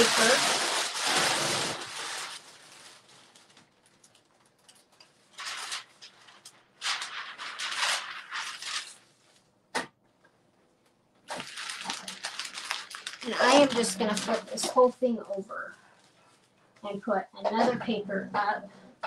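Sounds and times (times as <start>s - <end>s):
paper rustling and crinkling: 0.0s - 9.5s, 11.3s - 14.9s.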